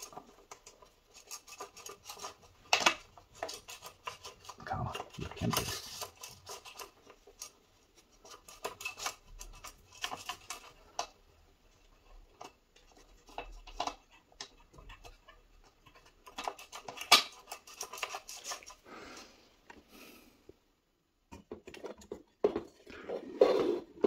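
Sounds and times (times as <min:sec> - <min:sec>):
cable rustling and scraping: 0:00.0 - 0:19.9, 0:21.3 - 0:24.0.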